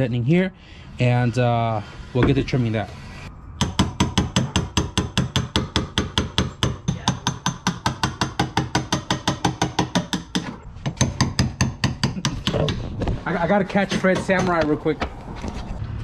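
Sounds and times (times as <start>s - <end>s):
hammer striking chisel on metal: 3.6s - 12.7s, 13.9s - 14.8s.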